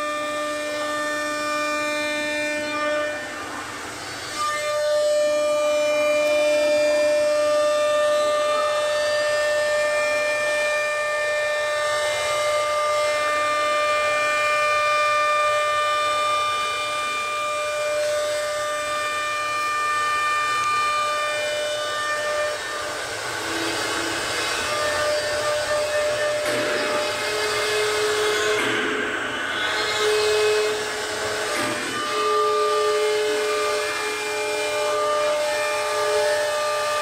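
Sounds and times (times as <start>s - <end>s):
router spindle high whine: 0.0s - 37.0s.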